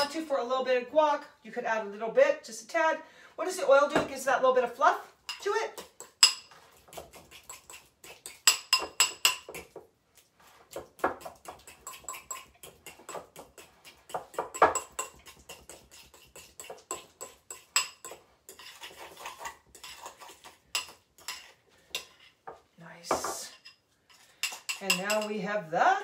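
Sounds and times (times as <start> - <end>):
fork clinking against glass bowl: 5.3 - 6.5, 7.3 - 9.7, 11.5 - 22.2, 24.1 - 25.3.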